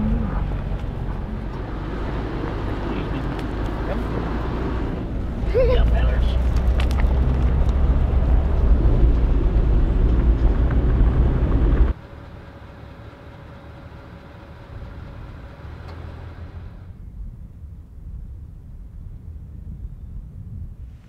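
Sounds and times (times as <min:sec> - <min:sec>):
vehicle rumbling on dirt road: 0:00.0 - 0:21.0.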